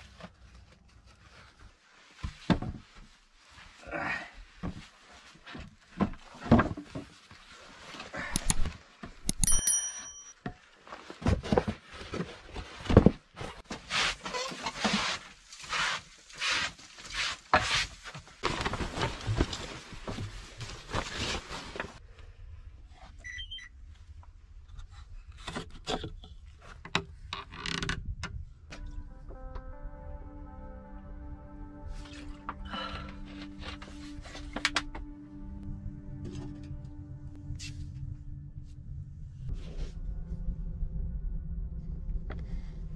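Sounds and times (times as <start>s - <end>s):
brief metallic ring: 9.3s - 10.4s.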